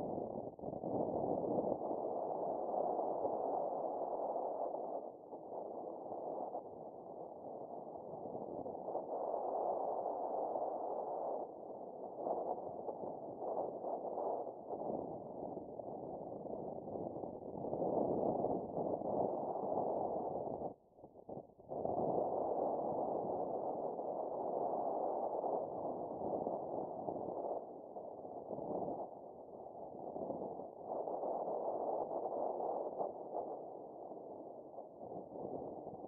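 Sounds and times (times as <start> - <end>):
wind rushing over microphone: 12.2 - 36.0.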